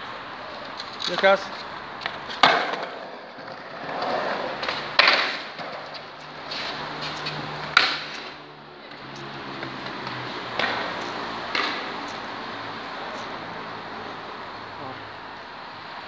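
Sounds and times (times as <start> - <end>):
skateboard wheels rolling on concrete: 0.0 - 16.0
skateboard clacks: 0.6 - 12.4.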